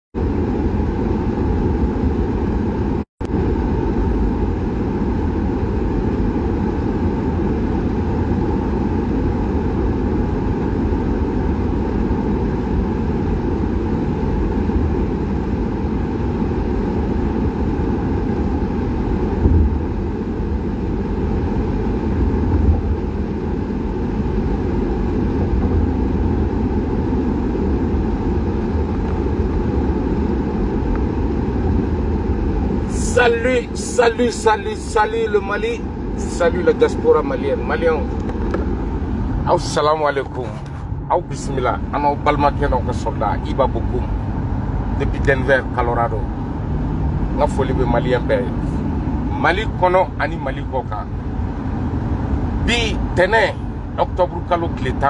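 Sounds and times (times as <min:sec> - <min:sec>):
car road and engine noise: 0:00.2 - 0:55.0
short low bumps: 0:19.4 - 0:20.0.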